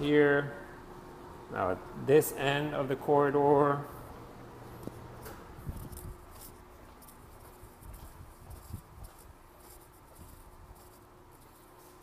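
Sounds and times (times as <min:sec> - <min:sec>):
faint steady hum: 0:00.0 - 0:12.0
soft footsteps: 0:03.8 - 0:12.0.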